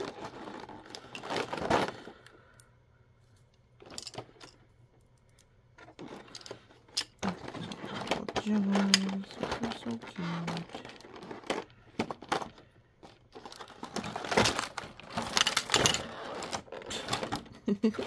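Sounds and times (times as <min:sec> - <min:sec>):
plastic pieces clattering: 0:00.0 - 0:02.6, 0:03.8 - 0:18.0.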